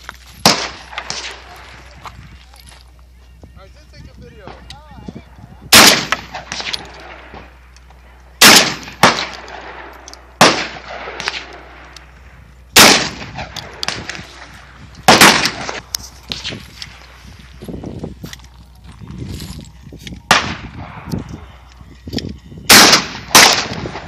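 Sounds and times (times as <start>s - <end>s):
gunshot echo: 0.4s - 1.6s, 5.7s - 7.5s, 8.4s - 11.8s, 12.8s - 14.5s, 15.1s - 16.5s, 20.3s - 21.1s, 22.7s - 24.0s
shotgun shots: 0.4s - 1.6s, 5.7s - 7.6s, 8.4s - 11.9s, 12.8s - 16.6s, 20.3s - 21.1s, 22.7s - 24.0s.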